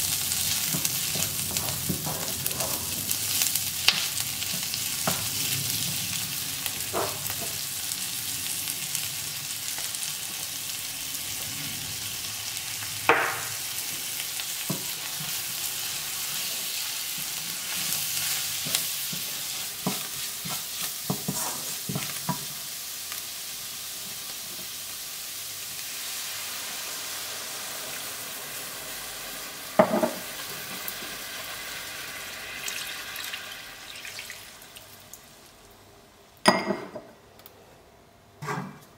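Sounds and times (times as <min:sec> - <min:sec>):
onions sizzling in a frying pan: 0:00.0 - 0:35.8
wooden spatula scraping a pan: 0:17.6 - 0:22.4.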